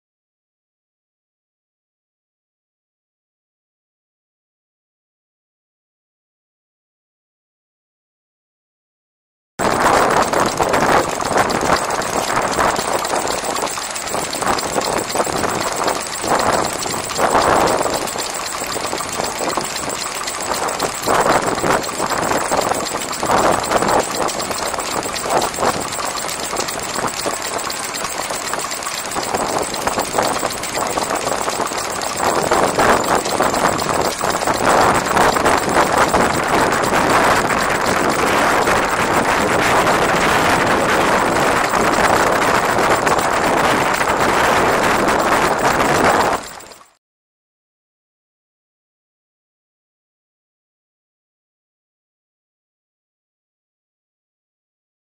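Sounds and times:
stationary petrol engine running: 9.6 - 47.0.

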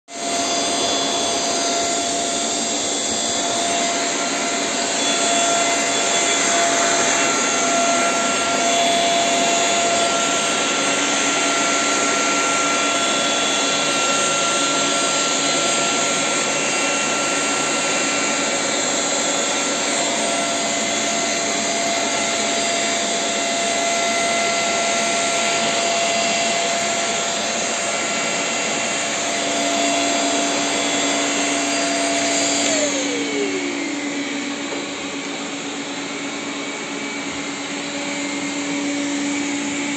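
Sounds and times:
vacuum cleaners whirring: 0.0 - 39.9.

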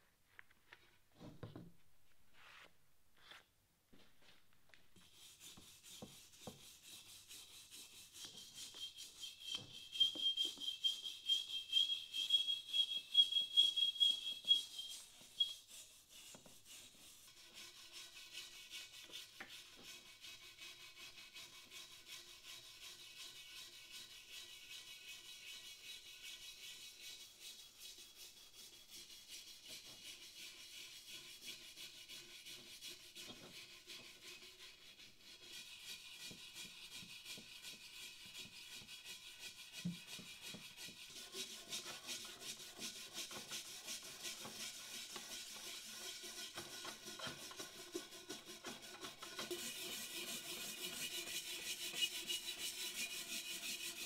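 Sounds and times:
brush scrubbing cast iron pot: 30.9 - 54.0.

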